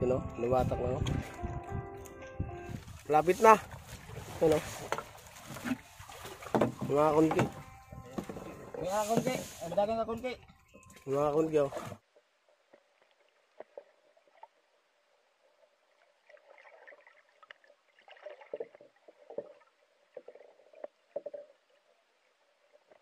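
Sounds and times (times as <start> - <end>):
underwater water gurgling: 12.9 - 23.0.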